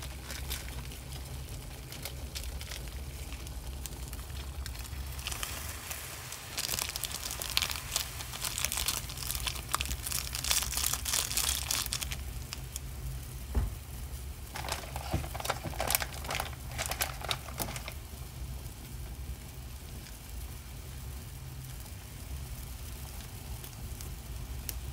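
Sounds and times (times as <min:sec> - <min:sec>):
plastic sachets crinkling: 0:00.0 - 0:05.7, 0:06.4 - 0:12.6, 0:14.5 - 0:18.0
pot boiling low rumble: 0:00.0 - 0:24.9.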